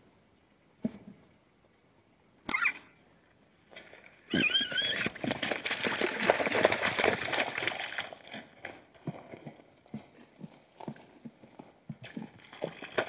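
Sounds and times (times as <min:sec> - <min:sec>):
hoofbeats on hard ground: 0:03.8 - 0:13.0.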